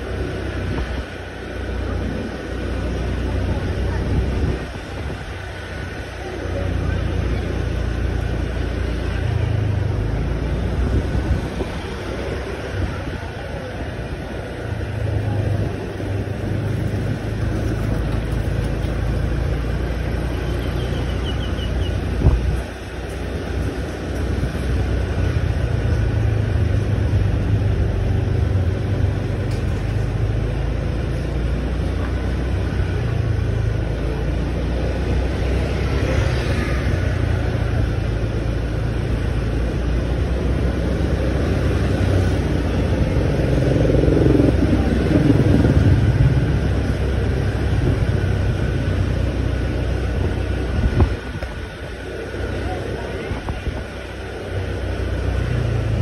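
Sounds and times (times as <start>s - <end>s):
motorbike engine and wind rumble: 0.0s - 56.0s
engine note sweeping down: 43.2s - 48.1s.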